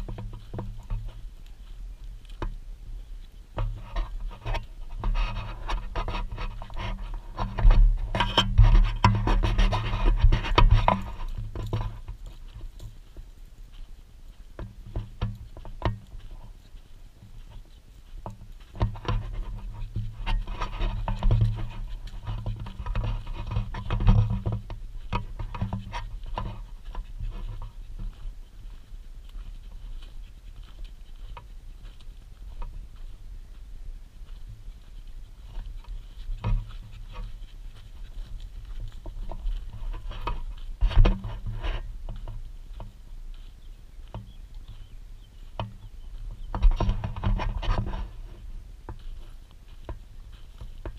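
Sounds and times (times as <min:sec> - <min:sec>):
paws scratching dry earth: 0:00.0 - 0:50.9
dog panting: 0:26.1 - 0:32.0, 0:35.3 - 0:40.0.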